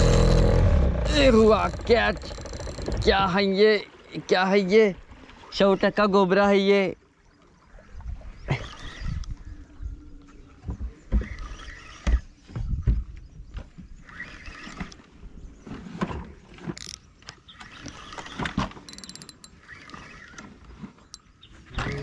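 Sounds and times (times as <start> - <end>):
fishing reel clicking and whirring: 0.0 - 3.7, 14.0 - 15.0, 16.7 - 20.6.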